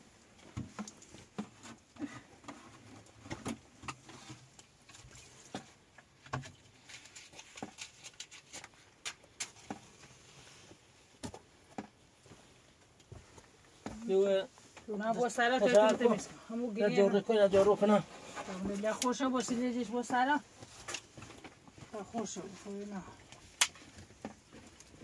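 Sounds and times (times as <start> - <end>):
dry twigs snapping and rustling: 22.6 - 23.9.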